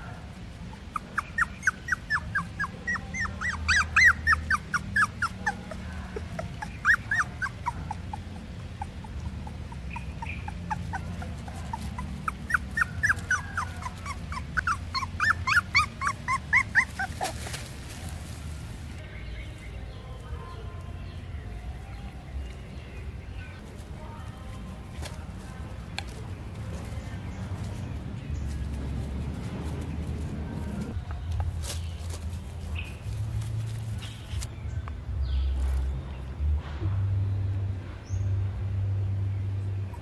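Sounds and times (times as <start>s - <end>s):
puppy whimpering yelps: 0.7s - 17.4s.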